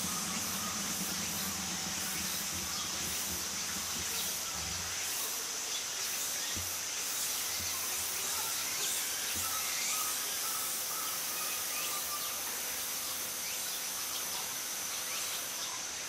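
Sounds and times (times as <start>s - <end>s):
low hum: 0.0s - 5.5s
high hiss: 0.0s - 16.0s.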